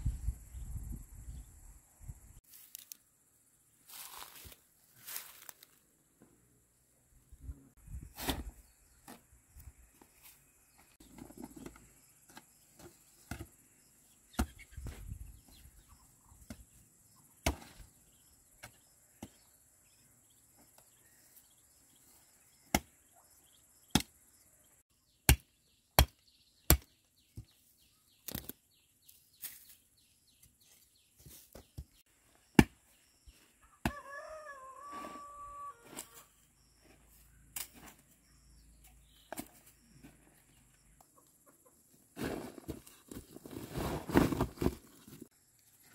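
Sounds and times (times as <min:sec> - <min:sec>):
hoe chopping hard soil: 0:08.2 - 0:08.6, 0:42.2 - 0:42.8, 0:43.5 - 0:44.8
chicken calling: 0:33.6 - 0:36.3.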